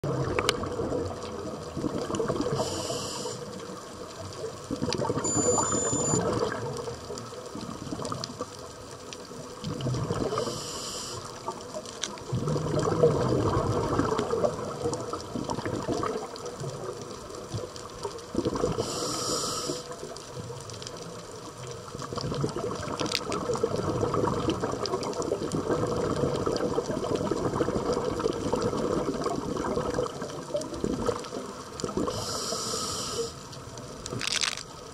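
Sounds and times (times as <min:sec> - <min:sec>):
rush of water with fine crackling: 0:00.0 - 0:34.9
short hissing bursts: 0:02.6 - 0:03.5, 0:10.4 - 0:11.4, 0:18.8 - 0:20.0, 0:32.1 - 0:33.5.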